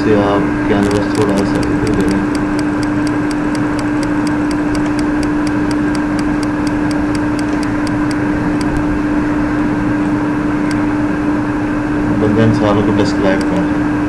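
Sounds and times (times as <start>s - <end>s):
noisy background: 0.0s - 14.0s
steady hum: 0.0s - 14.0s
fast even ticking: 0.8s - 8.9s.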